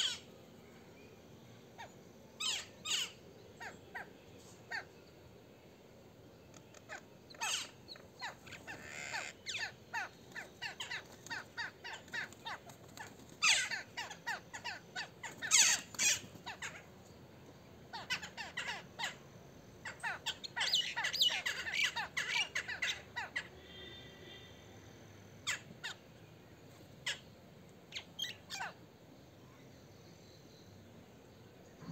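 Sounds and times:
mynas calling: 0:00.0 - 0:00.3, 0:01.8 - 0:05.2, 0:06.5 - 0:17.0, 0:17.9 - 0:24.5, 0:27.0 - 0:28.9.

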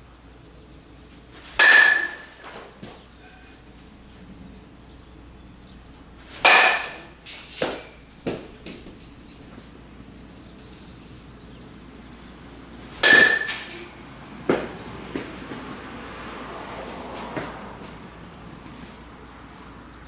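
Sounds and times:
metal bat hitting ball: 0:01.5 - 0:02.9, 0:06.3 - 0:08.9, 0:13.0 - 0:15.3.

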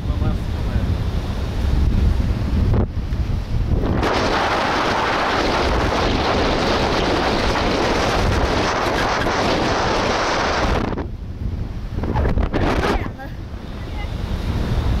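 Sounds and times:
wind roaring on microphone: 0:00.0 - 0:15.0
surf breaking on rocks: 0:03.6 - 0:11.1.

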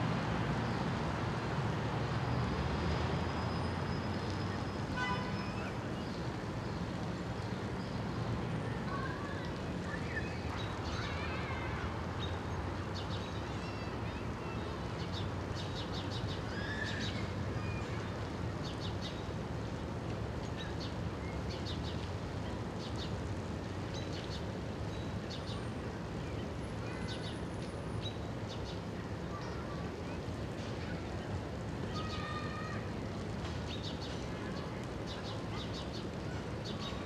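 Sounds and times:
small birds chirping: 0:08.9 - 0:19.3, 0:33.6 - 0:37.0.

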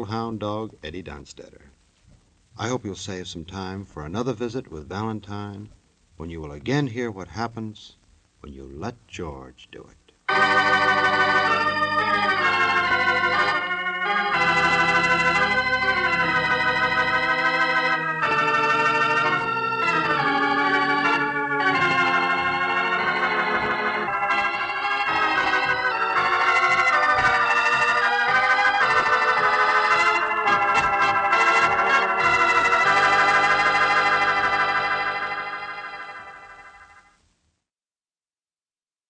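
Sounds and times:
organ chords: 0:10.3 - 0:37.1.

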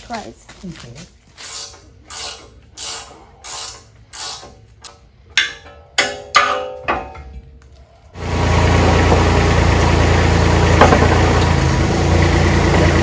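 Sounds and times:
ratchet wrench clicking: 0:01.4 - 0:05.0.

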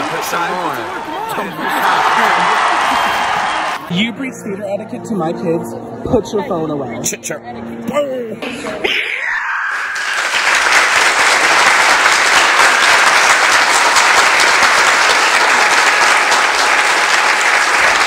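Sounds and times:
audience applauding: 0:00.0 - 0:03.8, 0:09.7 - 0:18.0.

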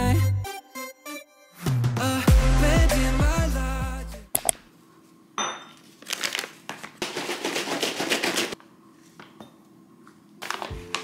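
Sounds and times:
plastic pouch crinkling: 0:05.8 - 0:08.0.

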